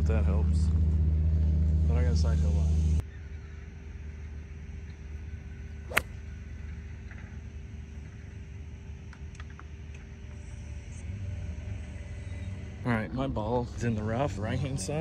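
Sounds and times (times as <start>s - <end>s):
golf club striking ball: 5.9s - 6.1s.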